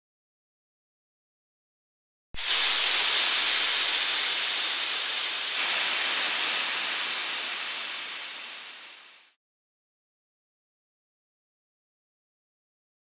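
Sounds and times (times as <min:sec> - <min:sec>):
bright steady hiss: 0:02.4 - 0:09.4.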